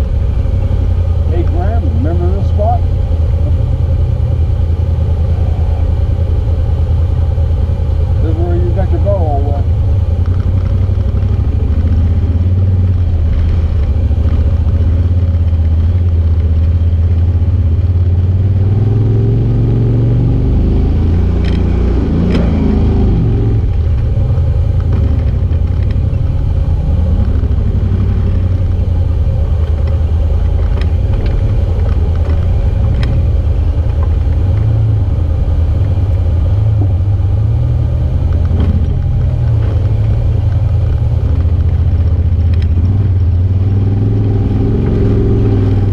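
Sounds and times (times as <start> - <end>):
utility vehicle engine droning: 0.0 - 45.9.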